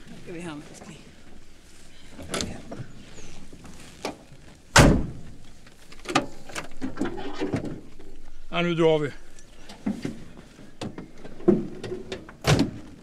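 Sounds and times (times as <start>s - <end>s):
car doors shutting: 4.0s - 5.4s, 9.7s - 13.0s.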